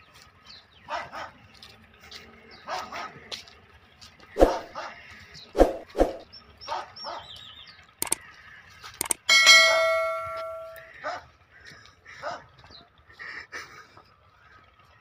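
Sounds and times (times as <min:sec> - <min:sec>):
dog barking: 0:00.9 - 0:01.4, 0:02.7 - 0:03.2, 0:06.7 - 0:07.3, 0:11.0 - 0:11.3, 0:12.2 - 0:12.4
clicks: 0:09.0 - 0:10.8
bright bell chime: 0:09.2 - 0:10.9.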